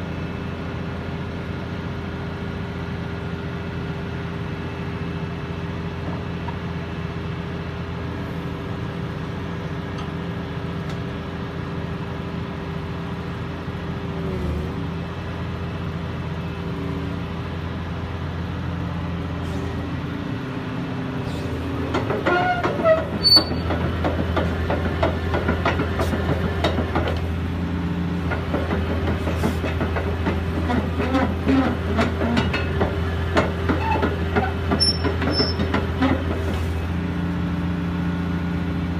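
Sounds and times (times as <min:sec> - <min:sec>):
excavator diesel engine running: 0:00.0 - 0:38.9
steel tracks clanking: 0:21.2 - 0:27.3, 0:28.2 - 0:36.7.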